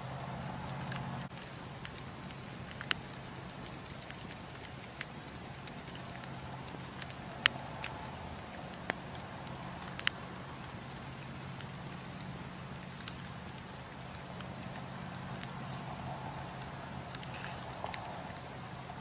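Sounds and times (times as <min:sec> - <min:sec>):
campfire crackling and popping: 0:00.0 - 0:19.0
campfire hiss: 0:00.0 - 0:19.0.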